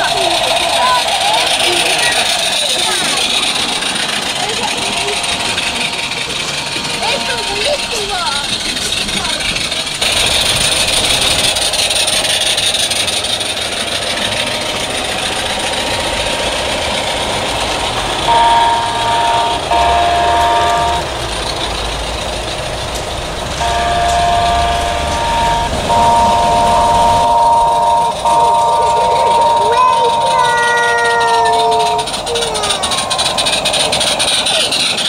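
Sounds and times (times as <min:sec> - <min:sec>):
train whistle blasts: 0:10.0 - 0:21.6, 0:23.5 - 0:34.8.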